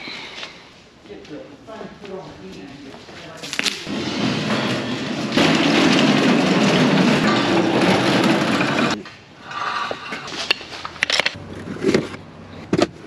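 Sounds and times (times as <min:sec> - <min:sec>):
loud mechanical noise: 0:03.9 - 0:10.3.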